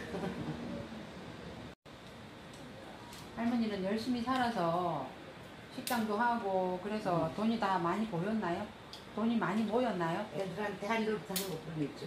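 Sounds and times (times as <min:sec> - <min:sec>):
woman's voice: 0:03.4 - 0:05.1, 0:05.8 - 0:12.0.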